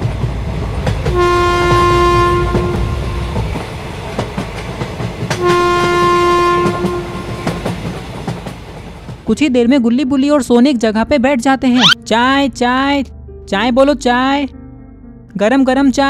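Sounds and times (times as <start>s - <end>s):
moving train rumble: 0.0s - 9.4s
train horn blasts: 1.1s - 3.5s, 5.4s - 7.6s.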